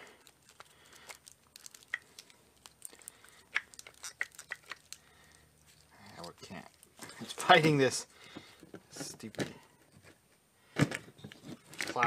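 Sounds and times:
small clicks and rattles of handled parts: 0.0 - 7.5.

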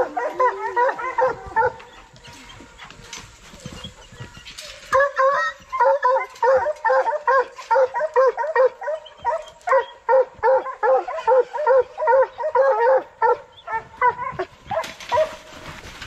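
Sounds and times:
dogs barking excitedly: 0.0 - 2.2, 4.9 - 15.4.

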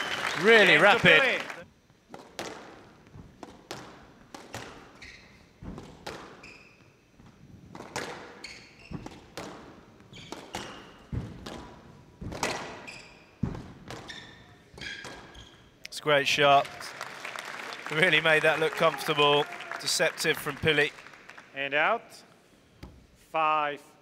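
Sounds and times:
squash ball hits: 2.1 - 5.0, 5.6 - 6.4, 7.7 - 14.2
shoes squeaking on court floor: 2.2 - 15.9.

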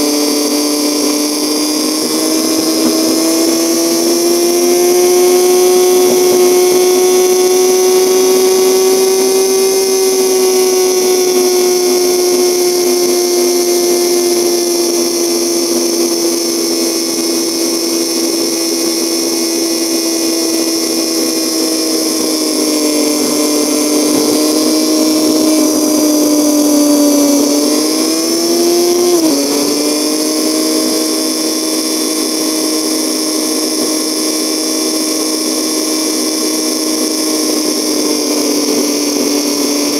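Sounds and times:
motorcycle engine droning: 0.0 - 39.9.

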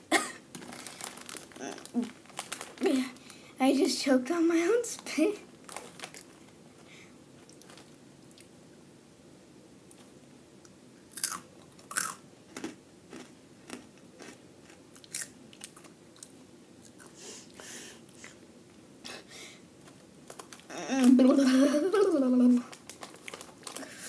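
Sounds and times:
crunchy snack chewing: 11.1 - 17.2, 22.8 - 23.9.

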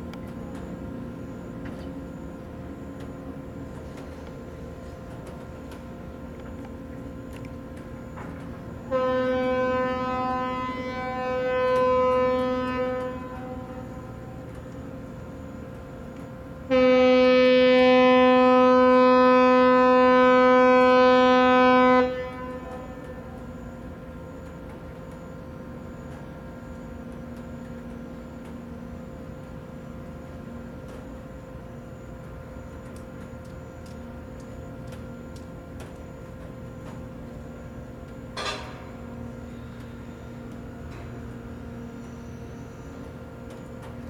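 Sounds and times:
ferry horn blasts: 8.3 - 24.7.

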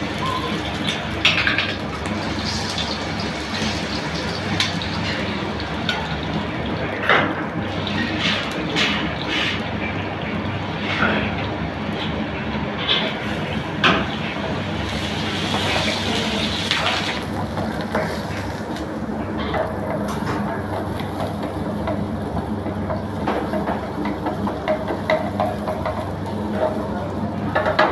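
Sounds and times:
egg sizzling in a frying pan: 0.0 - 7.0, 13.1 - 26.9.

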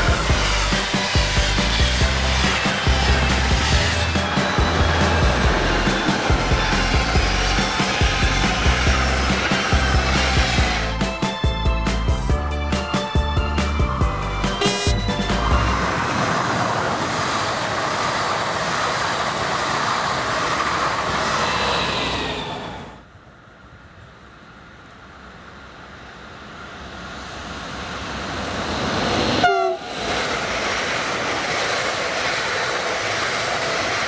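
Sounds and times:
train wheels on rails: 0.0 - 34.0
train horn: 14.5 - 15.8, 29.4 - 29.9.

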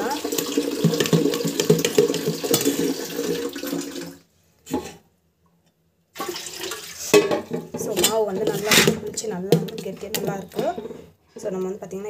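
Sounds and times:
spoon stirring batter in steel pot: 0.4 - 3.0, 7.8 - 11.5.

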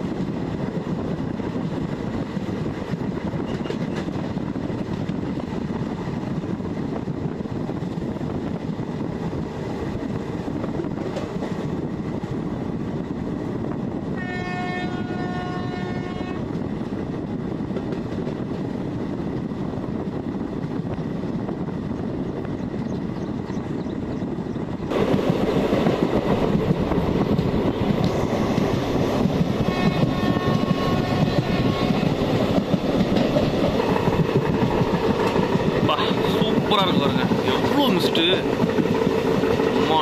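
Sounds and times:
train wheels clattering on rails: 0.0 - 40.0
train horn: 14.1 - 16.5, 29.6 - 32.3.

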